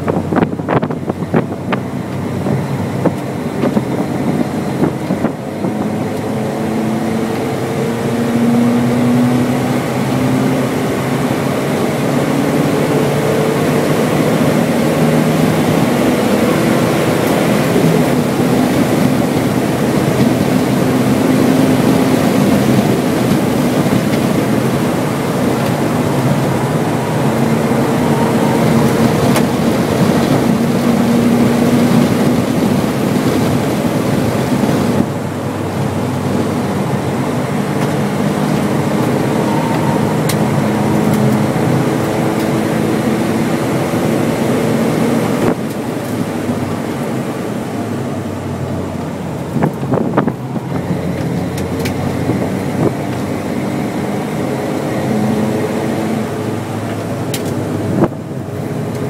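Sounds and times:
car engine under load: 0.0s - 59.0s
road and wind noise: 0.0s - 59.0s.

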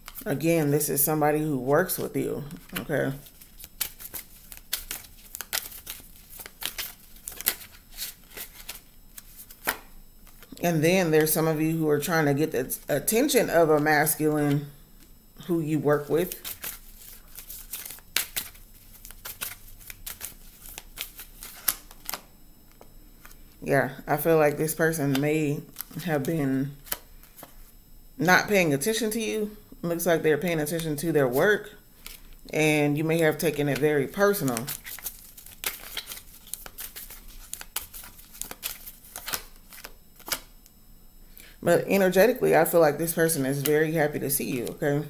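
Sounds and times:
cards being shuffled: 2.4s - 10.6s, 16.3s - 22.2s, 33.7s - 40.5s.

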